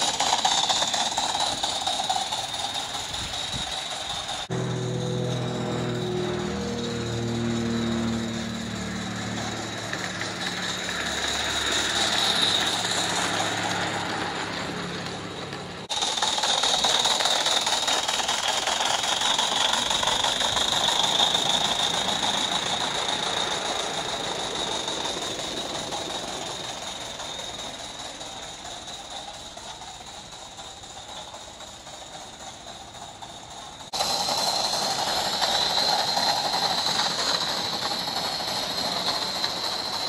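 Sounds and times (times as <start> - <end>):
small wheels rolling on rails: 0.0 - 40.0
steam locomotive hissing: 0.0 - 40.0
low hum: 4.5 - 13.7.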